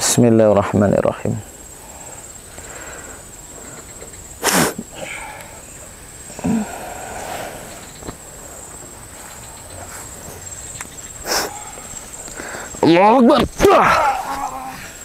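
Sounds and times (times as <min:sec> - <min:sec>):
high-pitched insect drone: 0:01.0 - 0:15.0
person grunting: 0:06.3 - 0:07.7, 0:13.7 - 0:15.0.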